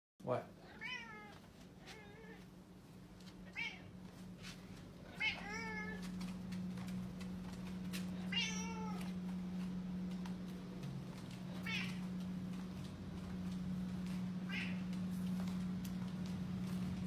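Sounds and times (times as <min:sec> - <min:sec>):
cat meowing: 0:00.6 - 0:02.5, 0:03.4 - 0:03.9, 0:05.0 - 0:06.1, 0:08.2 - 0:09.2, 0:11.5 - 0:12.1, 0:14.4 - 0:14.9.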